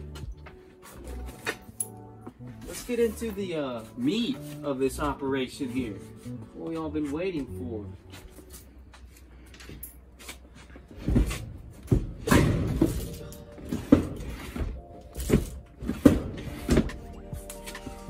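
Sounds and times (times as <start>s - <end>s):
background music: 0.0s - 18.0s
wooden chest knocking and scraping: 10.9s - 17.1s.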